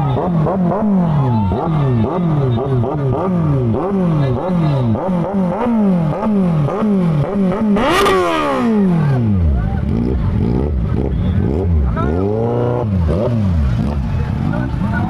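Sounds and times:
motorbike engines revving: 0.0s - 15.0s.

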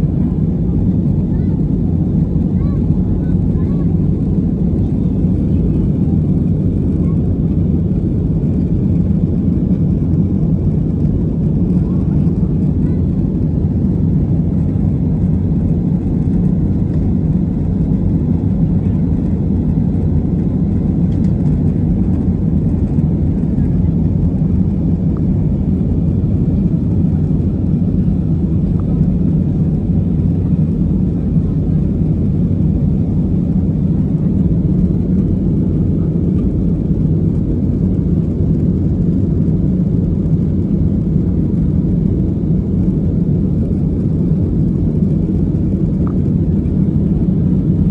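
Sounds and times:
airplane cabin engine rumble: 0.0s - 47.9s.

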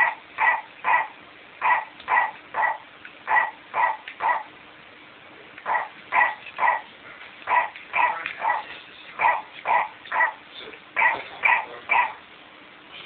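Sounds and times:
toy dog electronic barks: 0.0s - 4.5s, 5.6s - 6.9s, 7.5s - 10.4s, 11.0s - 12.2s.

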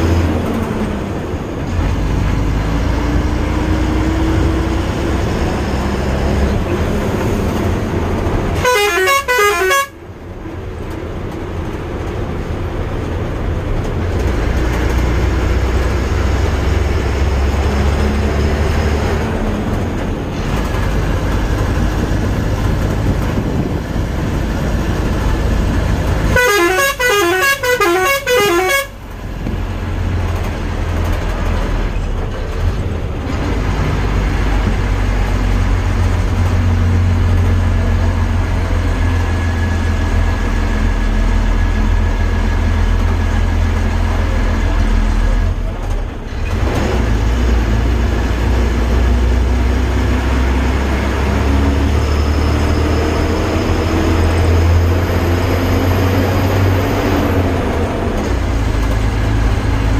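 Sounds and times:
vehicle engine and road rumble: 0.0s - 59.9s
horn falling notes: 8.6s - 10.0s, 26.3s - 29.0s.

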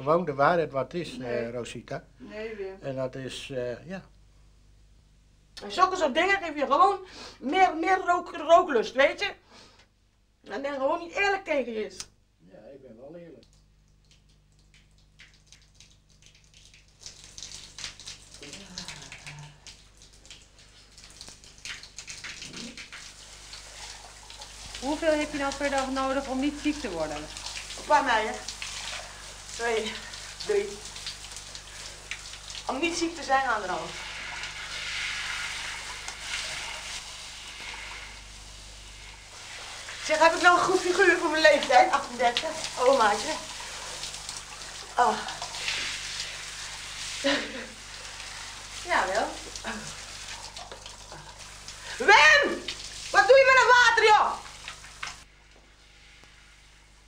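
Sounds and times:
low electrical hum: 0.0s - 57.0s
shower water spraying: 13.4s - 57.0s.

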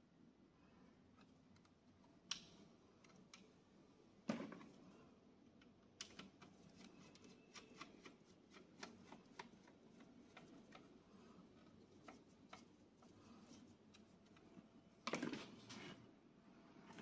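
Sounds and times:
faint handling clicks and taps: 5.5s - 14.7s.

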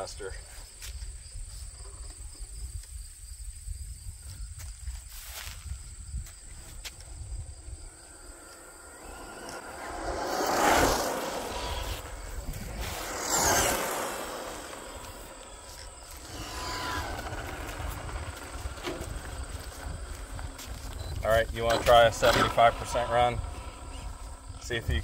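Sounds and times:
tyre noise on asphalt: 4.2s - 25.0s
rc truck motor whine: 6.5s - 25.0s.

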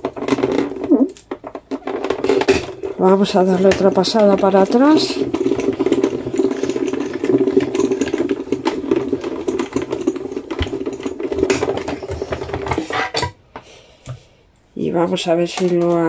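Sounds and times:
die-cutting machine grinding: 0.0s - 13.0s.

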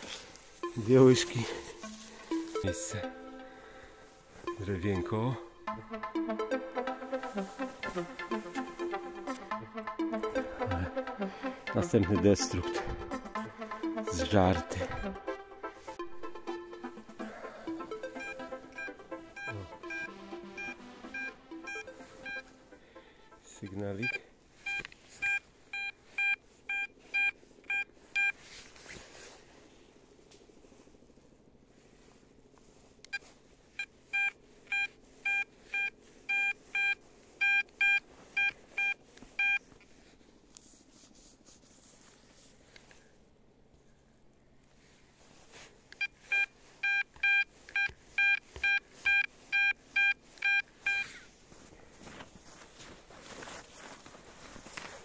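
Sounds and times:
metal detector beeps: 0.6s - 3.0s, 4.4s - 5.4s, 18.1s - 22.5s, 23.7s - 28.4s, 34.1s - 39.6s, 46.0s - 51.2s
scuffing noise: 51.0s - 55.0s.

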